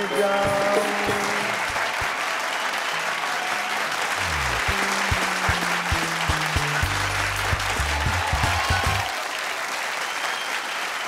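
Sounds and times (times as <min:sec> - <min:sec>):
audience applauding: 0:00.0 - 0:11.0
upbeat music with bass and drums: 0:04.2 - 0:09.1.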